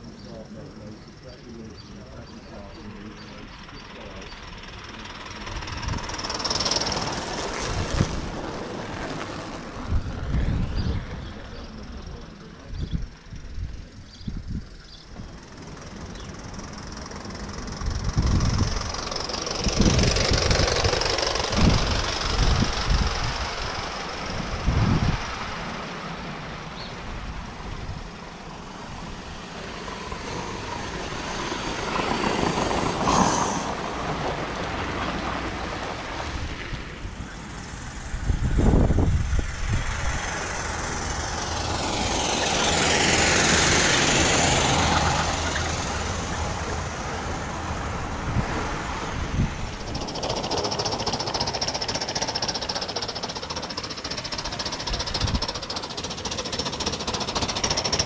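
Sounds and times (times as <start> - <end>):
model train clattering on track: 1.1 - 7.6, 15.0 - 24.4, 49.8 - 58.0.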